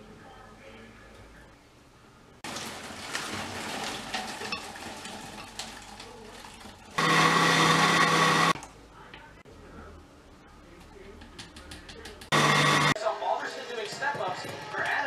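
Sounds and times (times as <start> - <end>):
blender motor whining: 7.0 - 8.6, 12.3 - 13.0.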